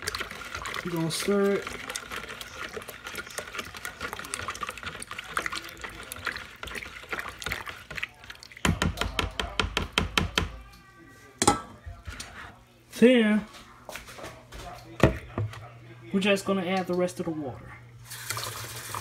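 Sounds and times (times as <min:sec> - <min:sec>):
liquid swishing from stirring: 0:00.0 - 0:09.5.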